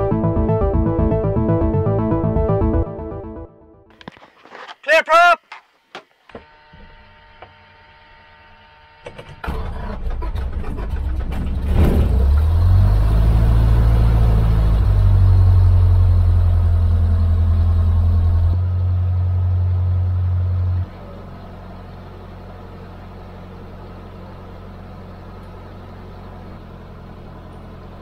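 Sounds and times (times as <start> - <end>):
starter cranking engine: 9.0 - 11.7.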